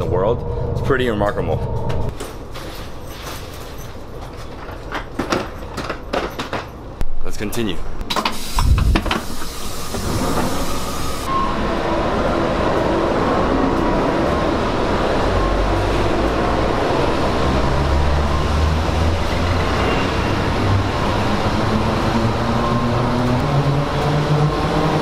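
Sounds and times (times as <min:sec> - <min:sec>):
train rushing past with low hum: 0:00.0 - 0:02.1, 0:08.5 - 0:25.0.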